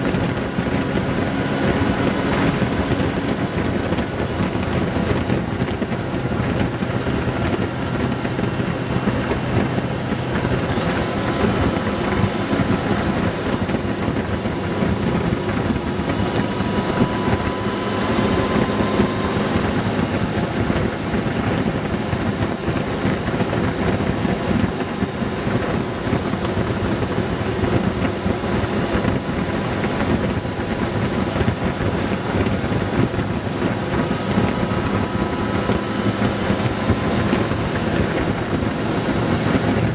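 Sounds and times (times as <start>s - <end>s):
motorcycle engine cruising: 0.0s - 39.9s
wind rushing over microphone: 0.0s - 39.9s.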